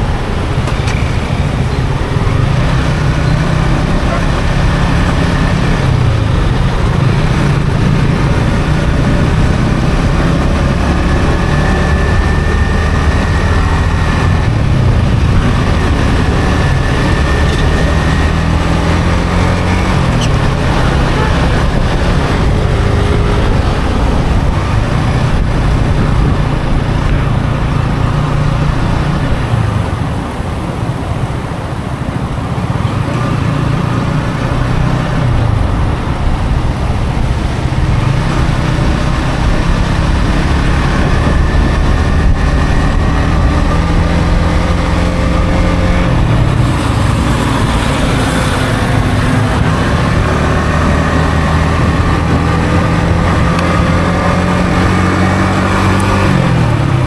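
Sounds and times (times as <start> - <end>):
motorcycle engine running: 0.0 - 57.0
wind and road noise: 0.0 - 57.0.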